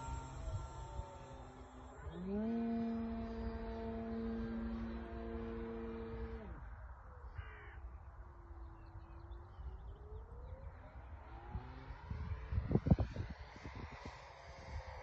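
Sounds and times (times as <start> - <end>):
model plane engine buzzing: 0.0 - 6.8, 10.7 - 15.0
crow cawing: 7.4 - 7.8.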